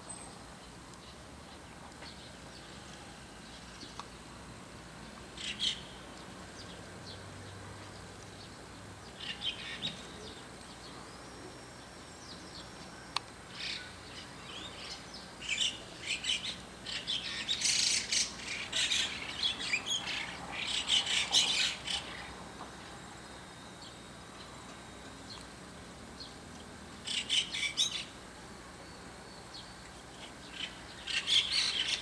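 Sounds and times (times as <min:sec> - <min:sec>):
starlings chattering calls: 0:05.4 - 0:07.3, 0:07.9 - 0:12.9, 0:13.5 - 0:22.5, 0:27.0 - 0:28.3, 0:28.9 - 0:32.0.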